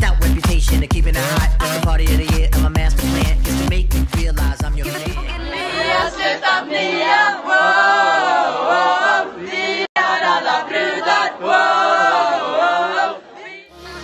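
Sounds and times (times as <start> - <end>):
group singing in unison: 5.1 - 14.0.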